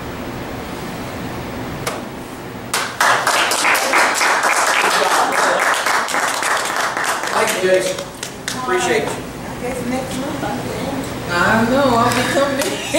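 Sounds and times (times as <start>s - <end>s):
room hiss: 0.0s - 12.9s
audience applauding: 2.7s - 8.7s.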